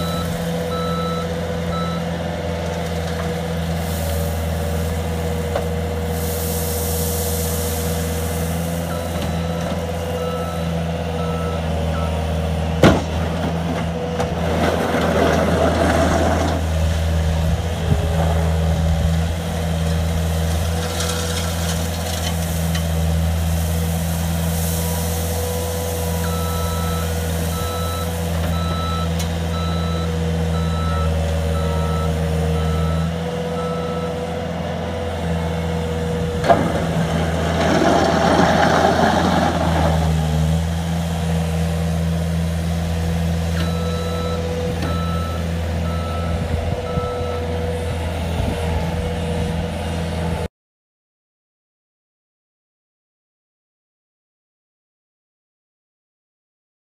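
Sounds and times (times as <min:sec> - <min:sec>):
reversing alarm beeping: 0:00.0 - 0:02.2, 0:08.8 - 0:12.3, 0:25.6 - 0:34.4, 0:43.6 - 0:47.6
diesel engine running: 0:00.0 - 0:50.5.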